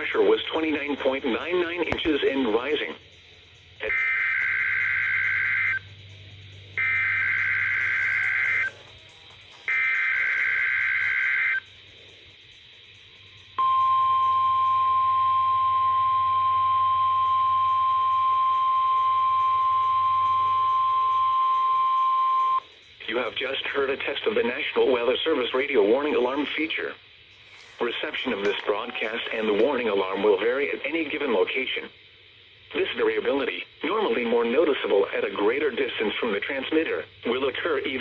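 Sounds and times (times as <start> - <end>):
steady warning alarm tone: 0.0 - 11.8, 13.0 - 23.6
two-tone data chirping: 0.7 - 11.8, 13.0 - 23.2.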